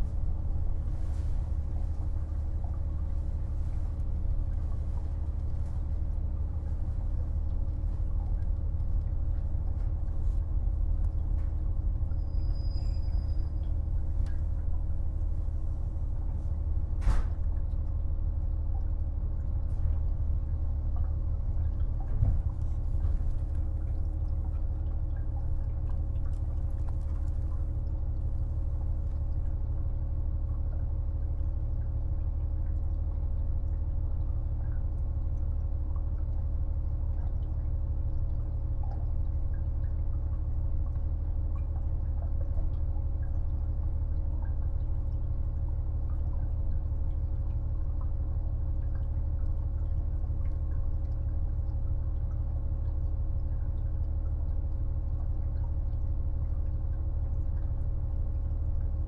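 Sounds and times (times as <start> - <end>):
diesel railcar engine rumble: 0.0 - 17.7, 19.7 - 29.0
constant hum: 0.0 - 59.0.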